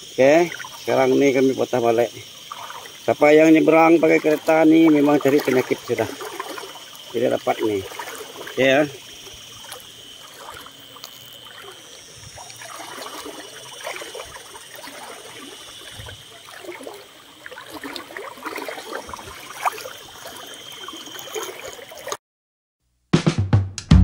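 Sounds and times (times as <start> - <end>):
river water flowing: 0.0 - 22.2.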